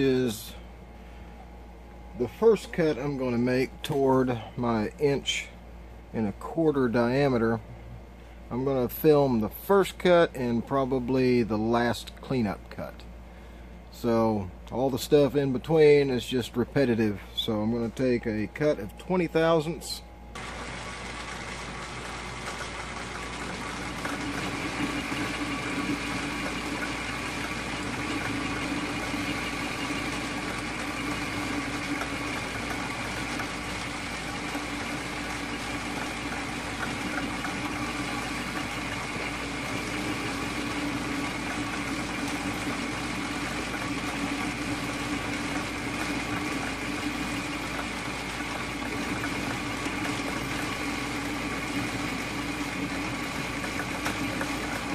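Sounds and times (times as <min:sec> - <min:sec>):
metal lathe hum: 0:20.4 - 0:54.9.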